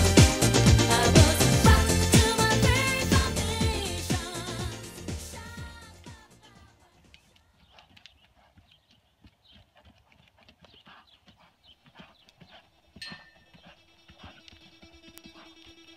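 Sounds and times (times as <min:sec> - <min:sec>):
horse hoofbeats on sand: 0:06.4 - 0:15.8.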